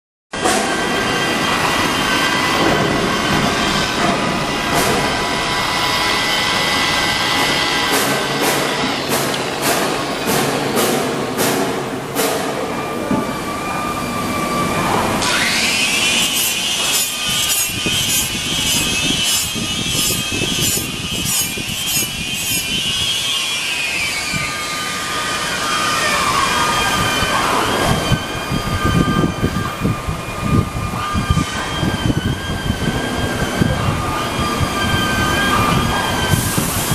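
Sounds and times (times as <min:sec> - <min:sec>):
sander motor whine: 0:13.2 - 0:36.6
sander grinding metal: 0:15.2 - 0:25.6.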